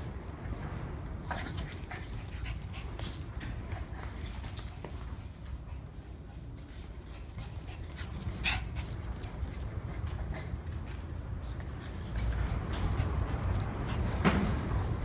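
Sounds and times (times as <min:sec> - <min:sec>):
puppy playing noises: 0:00.0 - 0:15.0.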